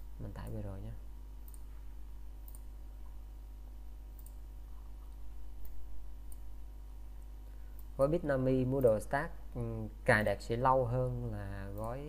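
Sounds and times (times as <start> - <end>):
low electrical hum: 0.0 - 12.0
computer mouse clicks: 1.4 - 1.8, 2.4 - 3.2, 4.1 - 6.5, 11.7 - 12.0.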